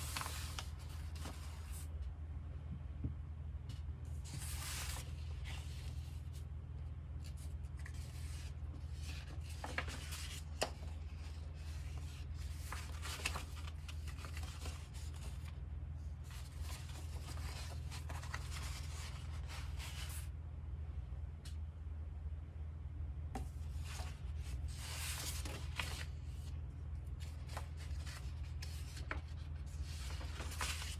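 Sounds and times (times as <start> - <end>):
paper sheets rustling: 0.0 - 2.0, 3.7 - 6.5, 7.2 - 15.6, 16.2 - 20.3, 23.5 - 30.9
steady low hum: 0.0 - 30.9.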